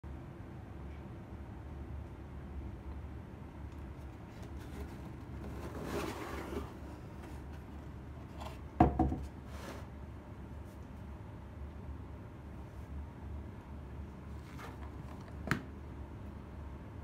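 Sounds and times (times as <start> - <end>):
low steady hum: 0.1 - 17.0
cardboard box lid rustling: 4.3 - 7.5.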